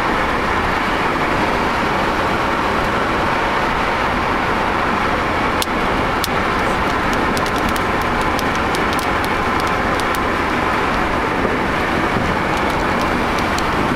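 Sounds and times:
car road and tyre noise: 0:00.0 - 0:13.9
faint ticks: 0:06.8 - 0:10.2, 0:12.5 - 0:13.7.

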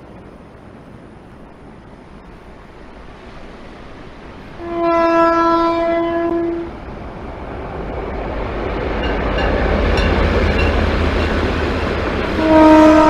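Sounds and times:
surf rushing: 0:00.0 - 0:13.0
train rumbling: 0:00.0 - 0:13.0
wind: 0:00.0 - 0:13.0
train horn blast: 0:04.6 - 0:06.7, 0:12.2 - 0:13.0.

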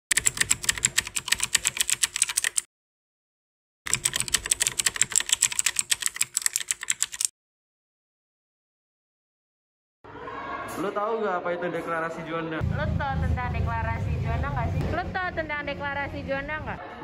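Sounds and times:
keyboard typing clicks: 0:00.1 - 0:02.7, 0:03.9 - 0:07.3.

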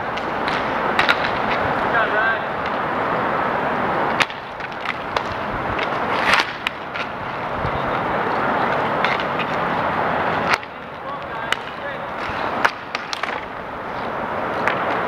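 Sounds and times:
sticks and puck clacking: 0:00.0 - 0:03.1, 0:03.9 - 0:15.0
skate wheels rolling and scraping: 0:00.0 - 0:15.0.

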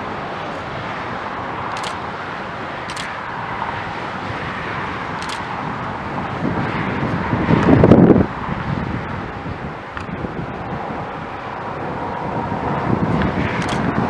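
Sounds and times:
distant freight train rumble: 0:00.0 - 0:14.0.

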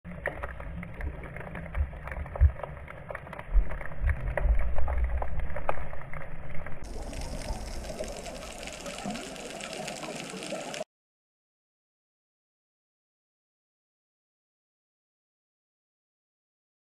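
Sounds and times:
muffled underwater water noise: 0:00.1 - 0:10.9
steady water hiss: 0:06.8 - 0:10.8.

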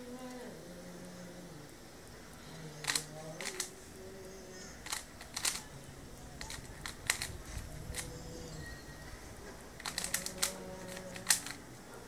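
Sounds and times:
puzzle cube clicking: 0:02.8 - 0:03.8, 0:04.8 - 0:05.7, 0:06.3 - 0:08.3, 0:09.8 - 0:11.7.

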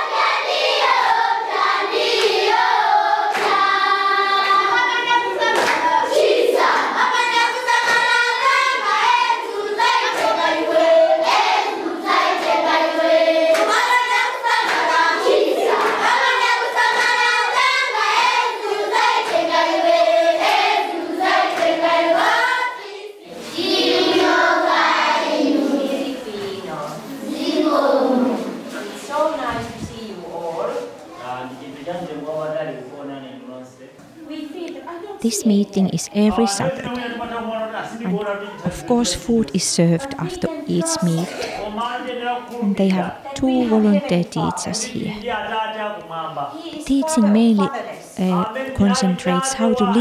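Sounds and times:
children singing in chorus: 0:00.0 - 0:26.6, 0:27.2 - 0:28.7
hand claps: 0:03.3 - 0:03.6, 0:05.5 - 0:05.9, 0:07.8 - 0:08.1, 0:13.5 - 0:13.8, 0:14.6 - 0:14.9, 0:15.7 - 0:16.1
person speaking: 0:35.2 - 0:37.2, 0:38.0 - 0:41.5, 0:42.6 - 0:45.3, 0:46.8 - 0:50.0.

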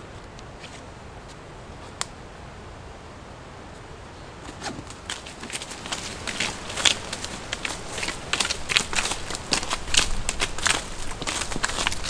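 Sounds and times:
quiet background hiss: 0:00.0 - 0:12.0
quick scuffs and clicks: 0:04.5 - 0:12.0
fabric rustling: 0:04.6 - 0:12.0.

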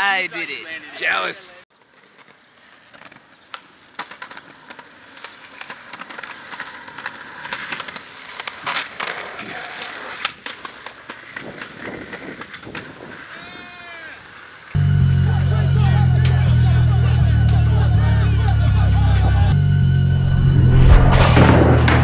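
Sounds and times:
skateboard wheels rolling on pavement: 0:01.7 - 0:14.8
skateboard clacks: 0:01.8 - 0:13.6.

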